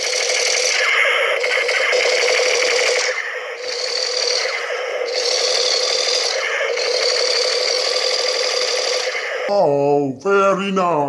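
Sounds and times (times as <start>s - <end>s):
toy gun mechanical rattle: 0.0s - 4.5s, 5.1s - 9.2s.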